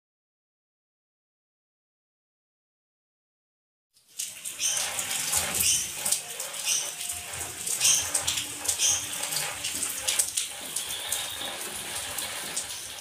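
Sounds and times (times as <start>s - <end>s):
rain on wet concrete: 4.0s - 13.0s
water splashes and drips: 4.0s - 13.0s.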